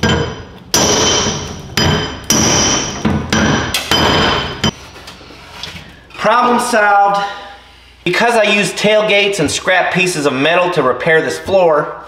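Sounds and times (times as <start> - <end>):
hammer striking steel: 0.0 - 4.8.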